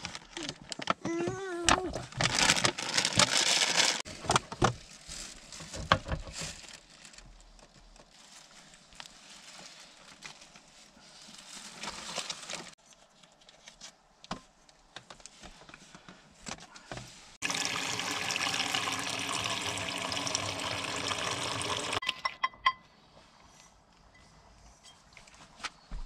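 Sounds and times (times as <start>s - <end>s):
water pouring in a stream: 17.4s - 22.0s.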